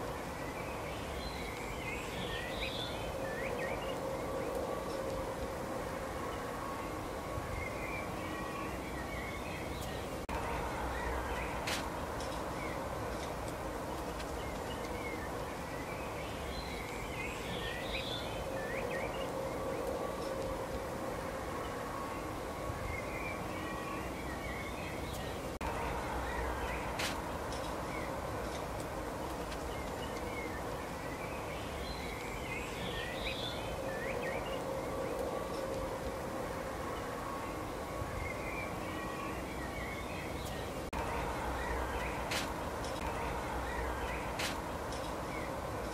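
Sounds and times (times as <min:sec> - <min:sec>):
faint low hum: 0:00.0 - 0:45.9
songbirds chirping: 0:00.0 - 0:45.9
steady outdoor hiss: 0:00.0 - 0:45.9.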